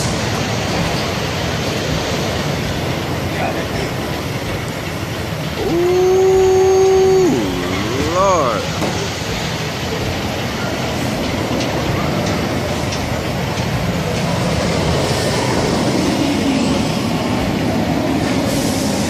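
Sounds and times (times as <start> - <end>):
roller coaster wheels on rails: 0.0 - 19.0.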